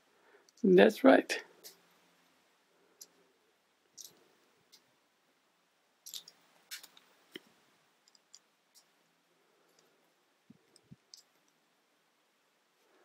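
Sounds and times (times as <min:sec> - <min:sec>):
plastic bricks clicking: 0:06.0 - 0:07.4.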